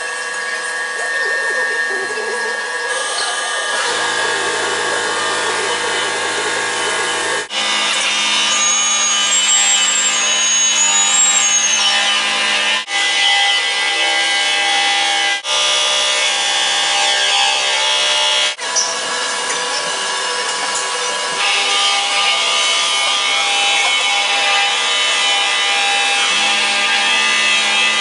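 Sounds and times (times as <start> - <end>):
high wavering squeal: 0.0 - 7.5, 8.5 - 12.2
milling machine cutting metal: 0.0 - 28.0.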